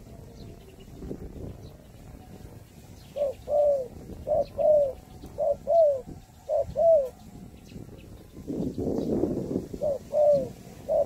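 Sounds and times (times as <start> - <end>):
dove cooing: 0.0 - 7.9, 8.6 - 11.0.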